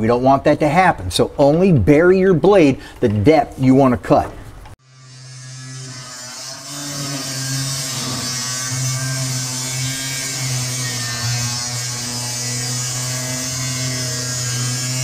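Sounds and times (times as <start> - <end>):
grinder cutting sheet steel: 4.8 - 15.0.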